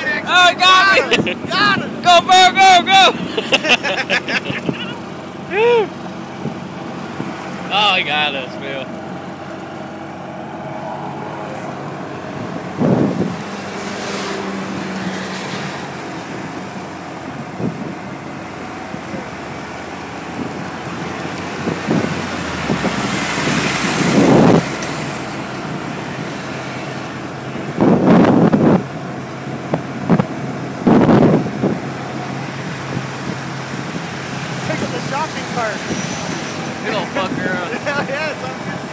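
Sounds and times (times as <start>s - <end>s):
golf cart motor hum: 3.1s - 13.7s.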